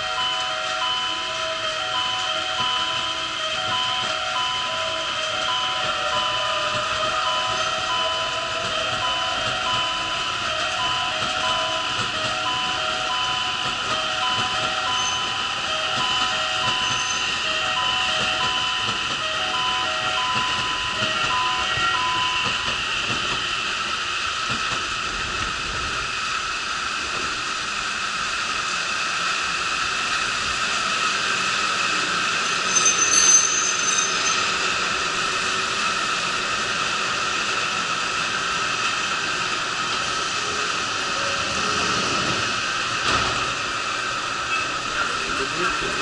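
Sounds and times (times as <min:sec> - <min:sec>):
electric train running hum: 0:00.0 - 0:46.0
high squeak: 0:14.4 - 0:15.5, 0:16.6 - 0:17.4, 0:32.4 - 0:34.7.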